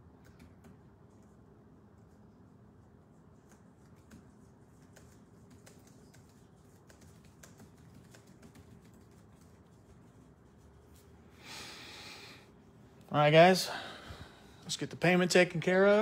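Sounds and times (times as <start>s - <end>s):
quiet room hum: 0.0s - 16.0s
typing on computer keyboard: 0.1s - 1.4s, 3.4s - 10.1s.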